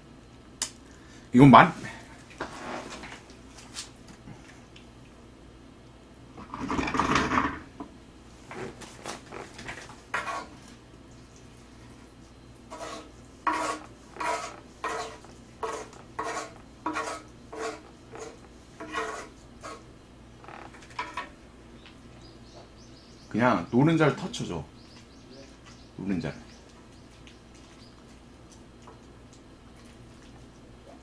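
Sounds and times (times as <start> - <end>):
wooden spatula scraping griddle pan: 2.4 - 3.2, 8.5 - 10.6, 12.7 - 19.8.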